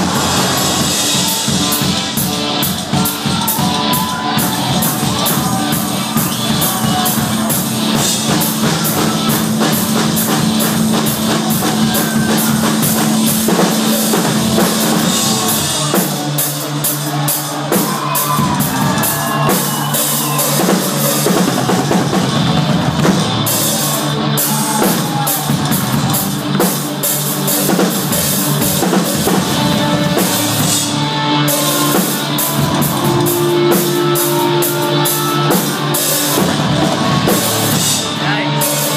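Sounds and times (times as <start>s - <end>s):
electric bass guitar: 0.0s - 16.0s, 28.1s - 38.9s
distorted electric guitars: 0.0s - 38.9s
drum kit with cymbals: 0.0s - 38.9s.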